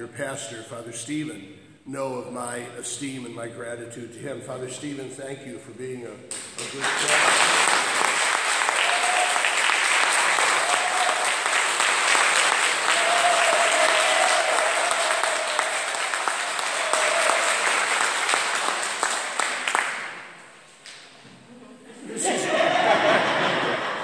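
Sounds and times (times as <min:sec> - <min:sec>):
congregation applauding: 0:06.3 - 0:20.7.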